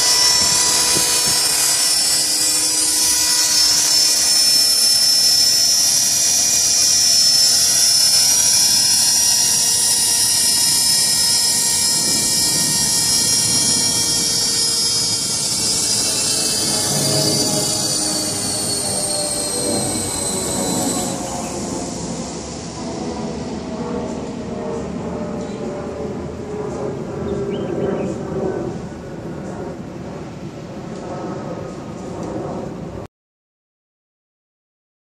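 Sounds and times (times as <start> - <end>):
rotor blades whirring: 0.0 - 25.3
rc helicopter motor whine: 0.0 - 28.2.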